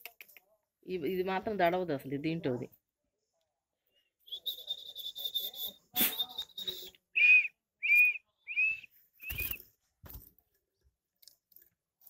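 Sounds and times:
person whistling high notes: 4.3 - 9.6.

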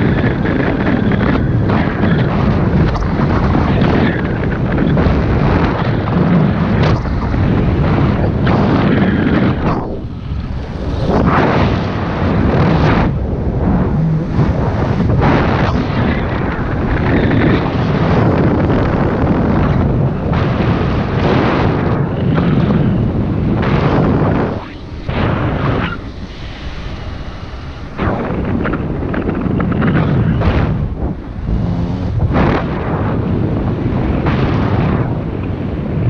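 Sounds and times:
wind buffeting microphone: 0.0 - 36.0
paramotor engine running: 26.0 - 32.7.

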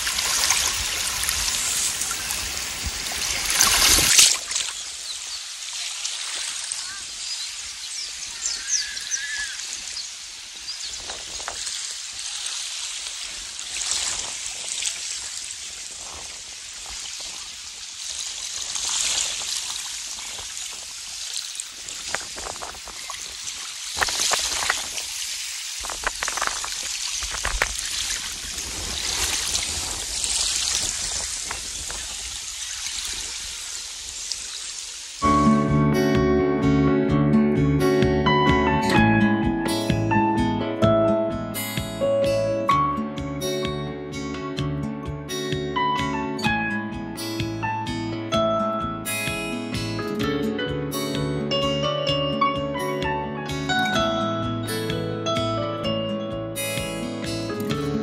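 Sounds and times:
small waves lapping on shore: 0.0 - 35.2
water trickles and splashes: 0.0 - 35.2.

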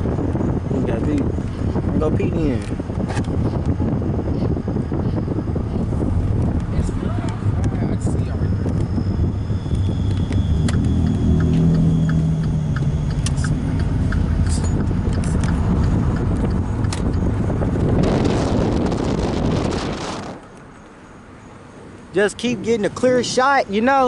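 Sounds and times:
car cabin rumble: 0.0 - 20.5
rush of noise: 0.0 - 20.7
even ticks: 9.7 - 17.8.

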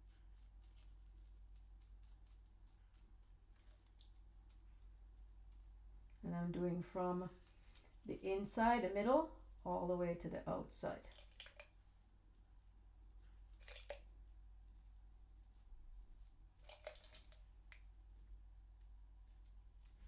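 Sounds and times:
plastic wrap crinkling: 13.5 - 14.1.

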